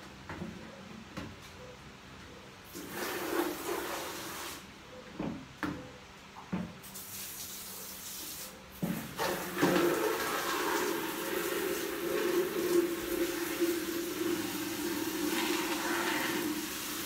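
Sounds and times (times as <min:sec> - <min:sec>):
tap water filling plastic bucket: 0:08.8 - 0:17.0.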